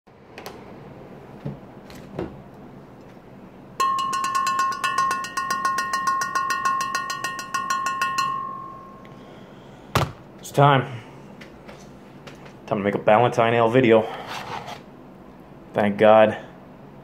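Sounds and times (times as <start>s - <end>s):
bright ringing strikes: 3.8s - 9.5s.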